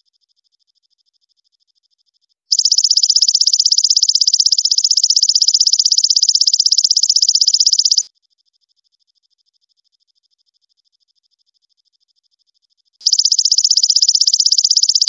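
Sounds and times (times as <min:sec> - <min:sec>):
faint high pulsed trill: 0:02.5 - 0:08.1, 0:13.0 - 0:15.0.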